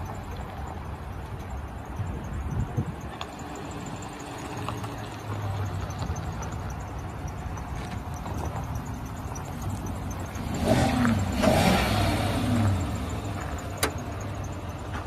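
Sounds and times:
vehicle engine revving: 0:03.2 - 0:15.0.

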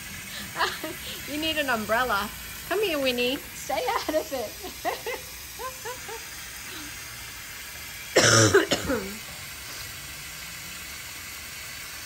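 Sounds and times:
hot water hissing: 0:00.0 - 0:12.0
cough-like burst: 0:08.1 - 0:09.4.

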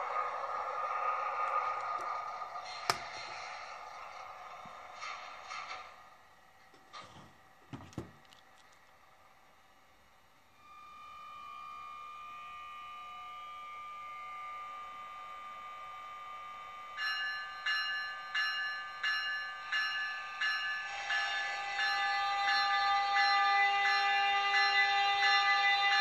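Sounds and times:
model locomotive hum: 0:00.0 - 0:07.6, 0:08.2 - 0:26.0
horn-like tone: 0:10.6 - 0:17.0
locomotive bell ringing: 0:16.9 - 0:26.0.

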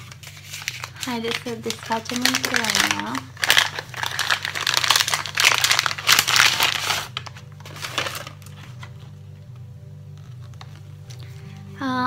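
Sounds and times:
paper wrapping crinkling: 0:00.0 - 0:09.4, 0:10.1 - 0:11.7.

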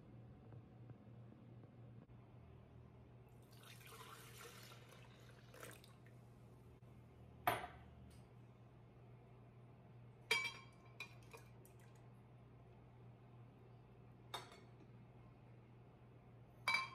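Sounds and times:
milk pouring and splashing: 0:03.4 - 0:06.2.

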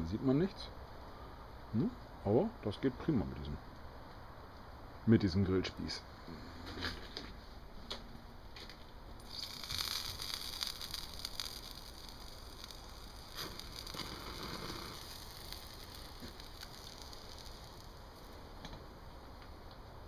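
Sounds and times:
sausages sizzling on a grill: 0:09.2 - 0:18.6
fire crackling: 0:09.2 - 0:19.8
steady hiss: 0:09.2 - 0:20.0.

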